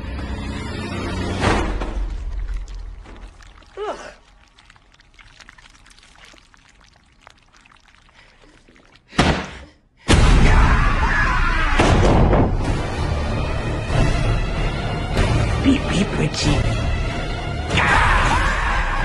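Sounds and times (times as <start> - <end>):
thud: 11.8 - 12.7.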